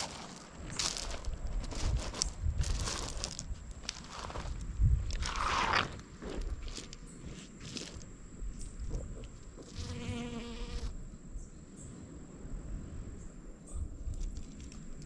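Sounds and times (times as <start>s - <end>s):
bee buzzing in flight: 9.6s - 10.9s.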